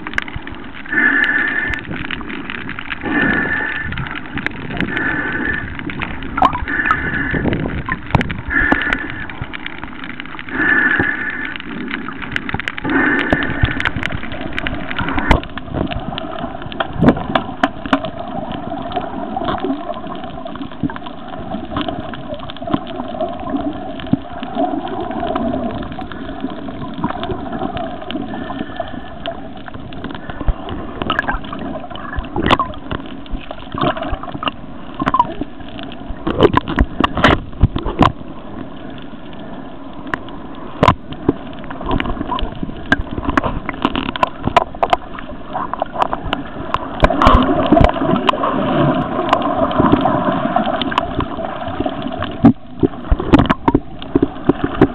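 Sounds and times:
water sloshing and gurgling: 0:00.0 - 0:54.9
sharp clicks and knocks: 0:40.8 - 0:48.4, 0:52.2 - 0:54.9.

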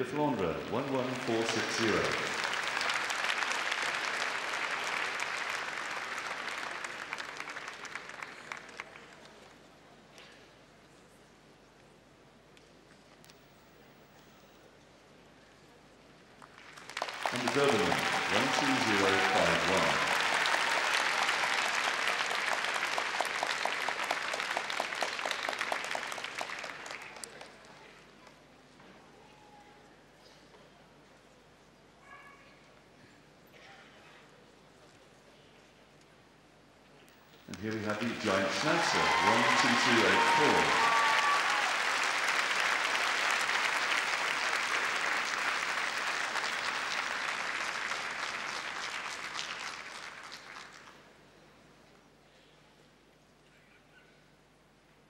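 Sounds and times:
audience applauding: 0:00.0 - 0:09.4, 0:16.4 - 0:27.7, 0:37.5 - 0:51.0
regular rhythmic claps: 0:16.6 - 0:27.1.

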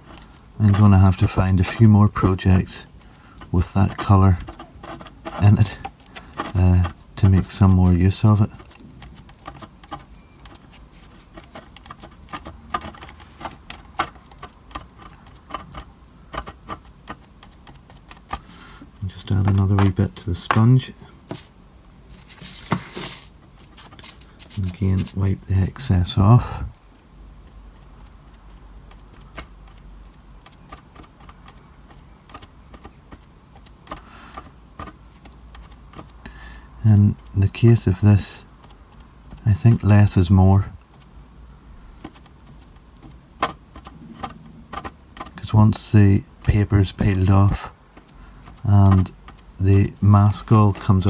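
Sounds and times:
steady low hum: 0:00.0 - 0:51.0
sponge dabbing paint taps: 0:19.3 - 0:21.5.

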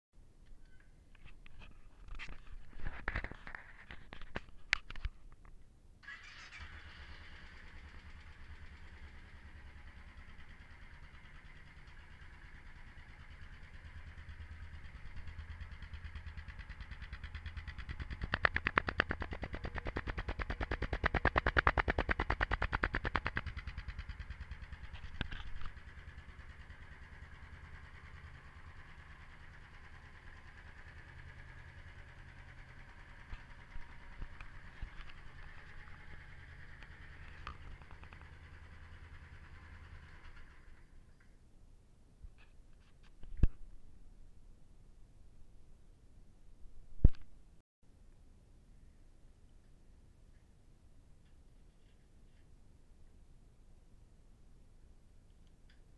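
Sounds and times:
motorcycle engine idling and revving: 0:06.0 - 0:41.4.

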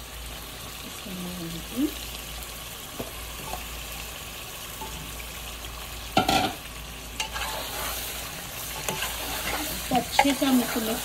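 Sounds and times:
curry sizzling in a pot: 0:00.0 - 0:11.0
clatter against pot: 0:06.2 - 0:06.6.

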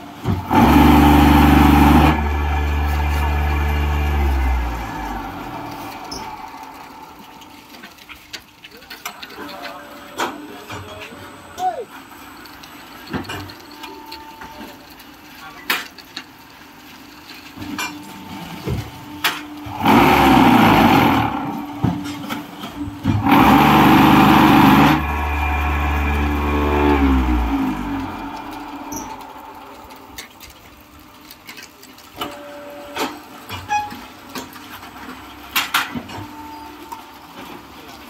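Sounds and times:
machine vibrators running: 0:00.2 - 0:08.4, 0:16.8 - 0:31.4
motors winding down: 0:00.3 - 0:08.3, 0:19.5 - 0:31.0.

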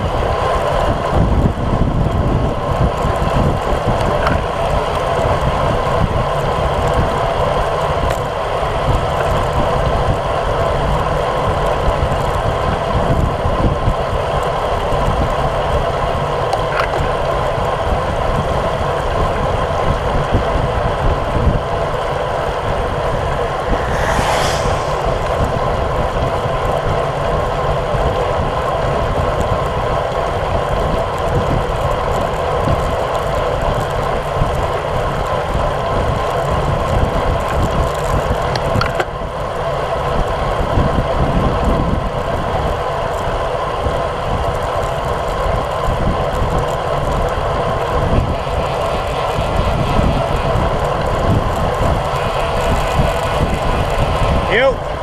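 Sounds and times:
wind rushing over microphone: 0:00.0 - 0:14.1, 0:17.9 - 0:31.7, 0:44.4 - 0:55.0
bike tyres on damp asphalt: 0:00.0 - 0:55.0
brief hiss: 0:23.4 - 0:26.2.

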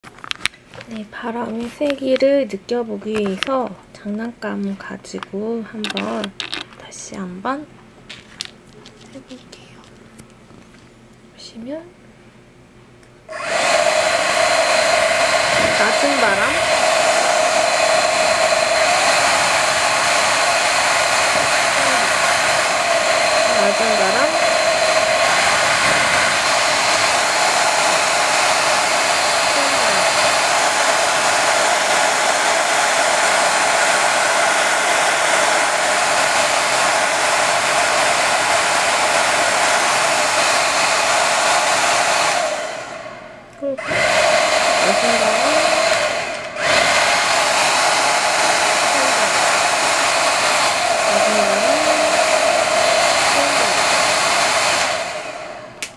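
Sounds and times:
hair dryer running: 0:13.3 - 0:55.9.

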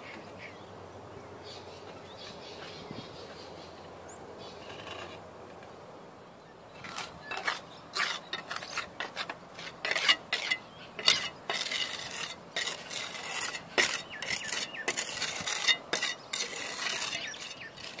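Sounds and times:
trowel scraping mortar: 0:06.8 - 0:18.0.

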